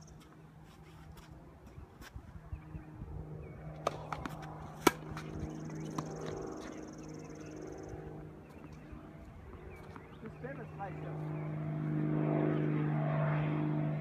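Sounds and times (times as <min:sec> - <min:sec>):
steady low hum: 0:00.0 - 0:14.0
tennis ball knocking off racket: 0:03.8 - 0:06.4.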